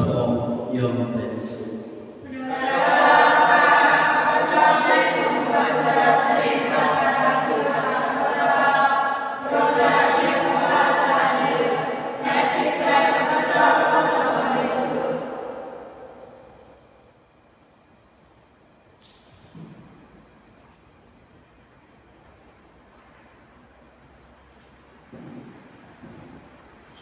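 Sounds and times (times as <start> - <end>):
choir singing unaccompanied: 1.5 - 16.8.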